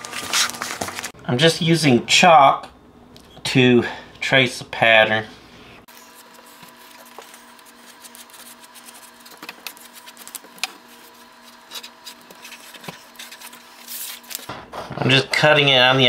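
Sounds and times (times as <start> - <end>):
steady low hum: 1.2 - 16.0
chalk scratching on linoleum: 5.9 - 14.3.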